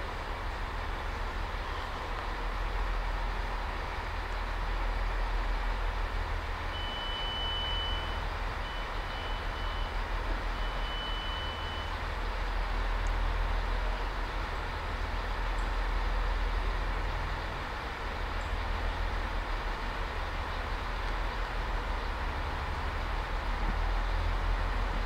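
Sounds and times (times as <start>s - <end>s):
high electronic warning beep: 6.8s - 10.0s, 10.6s - 11.9s.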